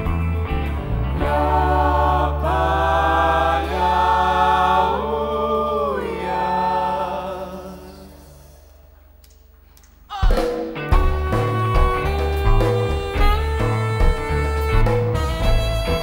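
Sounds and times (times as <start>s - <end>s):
voices singing in harmony: 1.0s - 8.9s.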